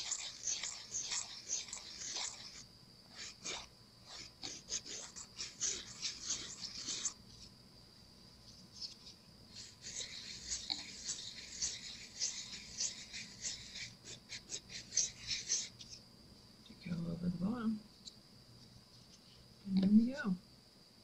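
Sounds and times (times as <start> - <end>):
nail file rasping on resin: 0.0 - 7.5, 8.7 - 16.0.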